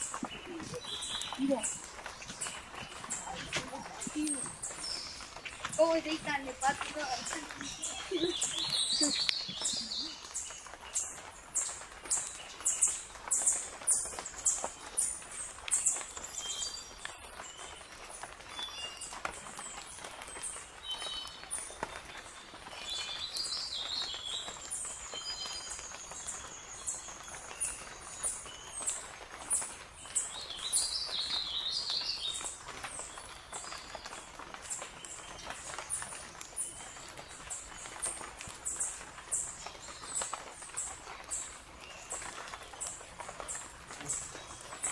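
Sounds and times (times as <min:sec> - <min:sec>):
rapid bird twittering: 0:00.0 - 0:17.9.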